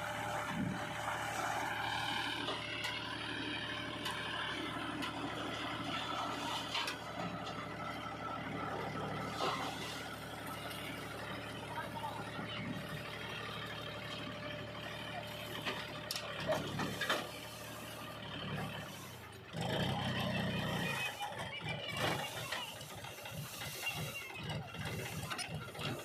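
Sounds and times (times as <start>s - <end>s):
diesel tractor engine running: 0.0s - 26.0s
soil load sliding off: 3.9s - 13.2s, 14.8s - 26.0s.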